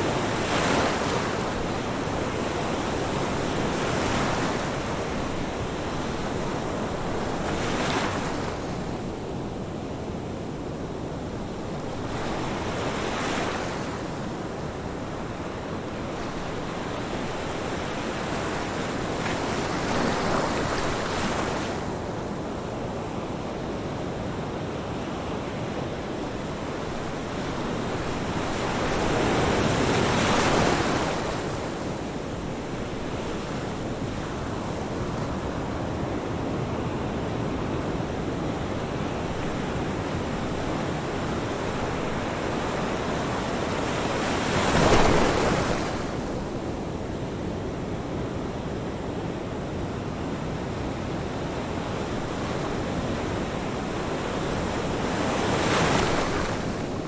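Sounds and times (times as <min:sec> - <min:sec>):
ocean waves breaking: 0:38.9 - 0:46.6, 0:52.0 - 0:57.0.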